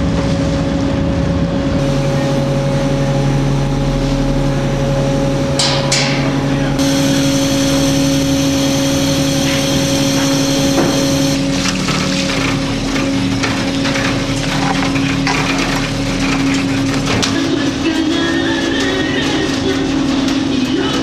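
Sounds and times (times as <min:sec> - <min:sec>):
deck machinery hum: 0:06.8 - 0:11.4.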